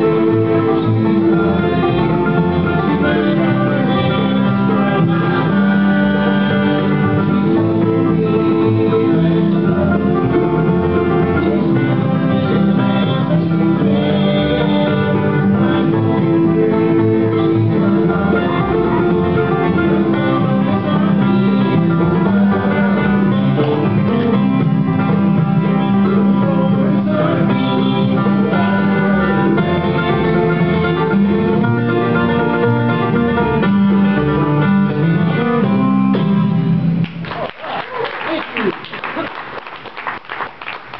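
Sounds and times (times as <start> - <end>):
voices singing in harmony: 0.0 - 24.6, 25.6 - 33.6
banjo picking: 0.0 - 36.3
upright bass: 0.0 - 38.8.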